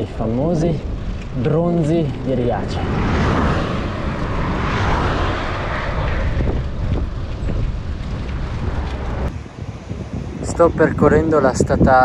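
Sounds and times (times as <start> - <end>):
wind on microphone: 0.0 - 12.0
car going past: 2.1 - 9.3.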